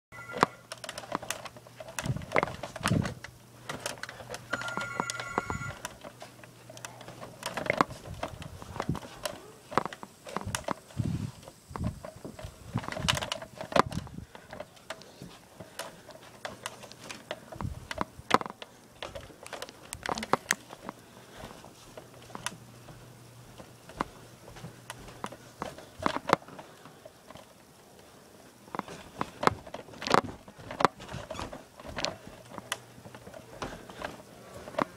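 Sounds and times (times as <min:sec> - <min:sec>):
brief steady tone: 0:00.1 - 0:00.6, 0:04.5 - 0:05.8
phone being handled: 0:00.2 - 0:10.8.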